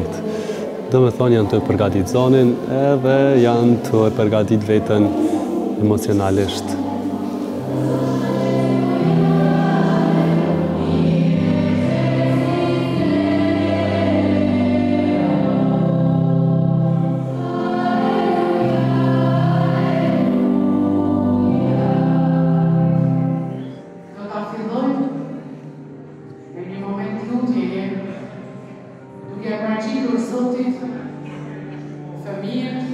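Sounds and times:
choir singing: 0:00.0 - 0:23.8.

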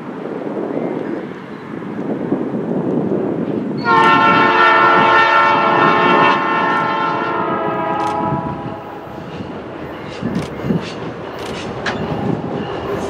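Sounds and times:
locomotive air horn blast: 0:03.8 - 0:09.1.

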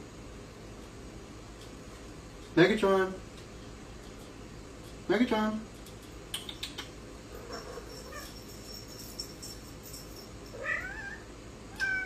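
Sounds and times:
cat meowing: 0:10.6 - 0:12.0.

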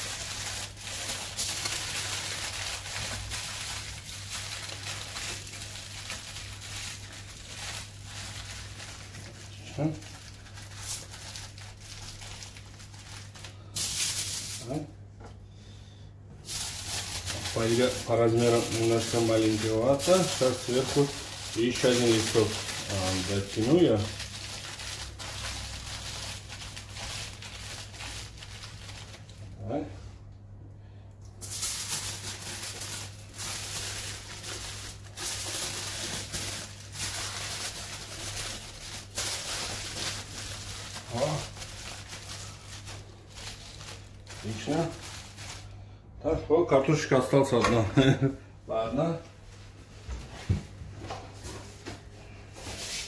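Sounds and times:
aluminium foil crinkling: 0:00.0 - 0:14.8, 0:16.4 - 0:29.6, 0:31.4 - 0:45.8.

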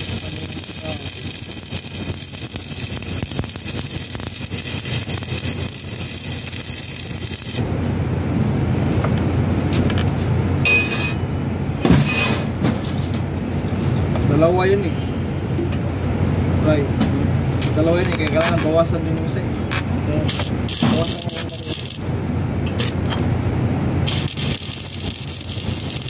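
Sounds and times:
arc welding crackling hiss: 0:00.0 - 0:07.6, 0:20.2 - 0:22.1, 0:22.8 - 0:23.4, 0:24.0 - 0:26.0.

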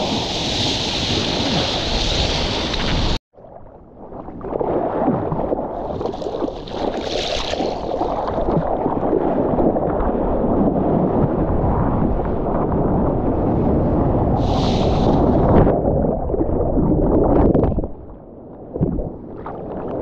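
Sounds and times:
ocean water rushing and splashing: 0:00.0 - 0:03.2, 0:04.4 - 0:17.5
wind on microphone: 0:00.0 - 0:03.2, 0:07.7 - 0:20.0
hiss of spray: 0:14.4 - 0:15.2.

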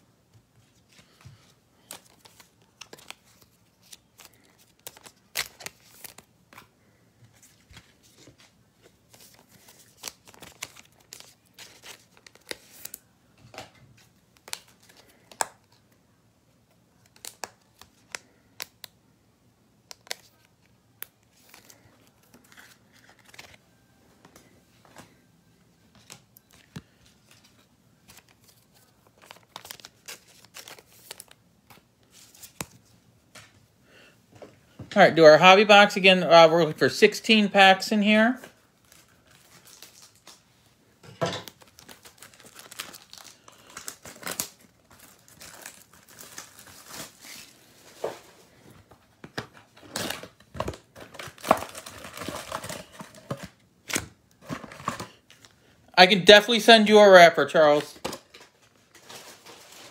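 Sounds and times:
plastic wrap crinkling and tearing: 0:01.8 - 0:06.3, 0:07.4 - 0:13.0, 0:19.8 - 0:23.6, 0:26.0 - 0:32.9, 0:38.6 - 0:40.5, 0:41.4 - 0:48.3, 0:49.4 - 0:55.6, 0:57.8 - 0:59.9.

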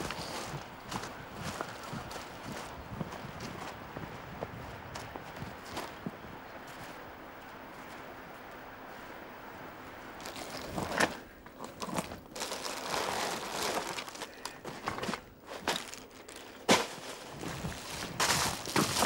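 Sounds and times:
packages rustling and crinkling: 0:10.2 - 0:19.0.

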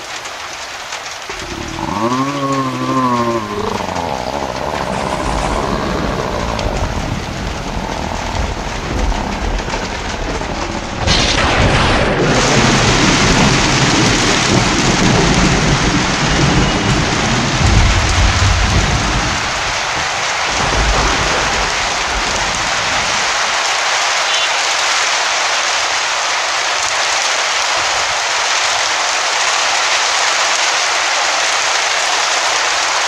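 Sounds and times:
heavy rain pouring: 0:00.0 - 0:33.0
low rumble: 0:01.3 - 0:15.9, 0:16.9 - 0:20.0.

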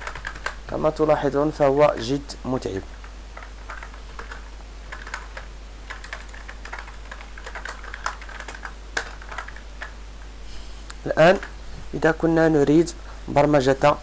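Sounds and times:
typing on computer keyboard: 0:00.0 - 0:00.6, 0:03.4 - 0:09.9.

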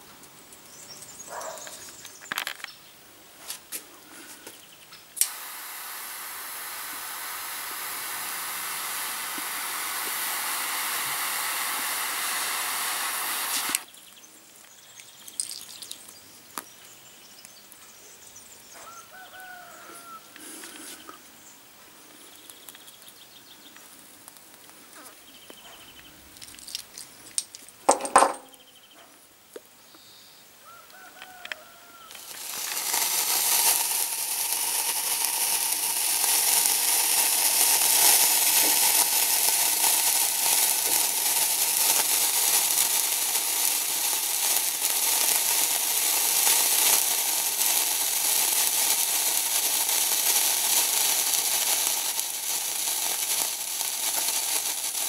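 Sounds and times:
sparkler fizzing crackle: 0:00.6 - 0:02.7, 0:03.4 - 0:17.6, 0:30.9 - 0:55.0.

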